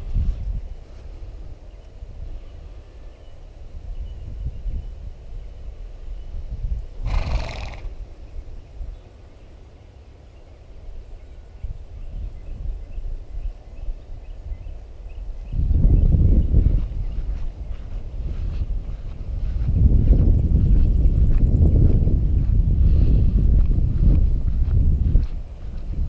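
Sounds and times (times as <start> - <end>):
wind rumbling on microphone: 0.0 - 26.0
horse snorting: 7.0 - 8.0.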